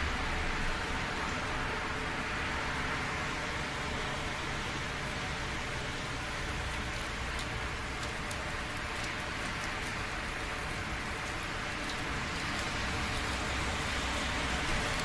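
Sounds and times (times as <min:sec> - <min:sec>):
raindrops ticking close by: 0:00.0 - 0:15.0
steady rain hiss: 0:00.0 - 0:15.0.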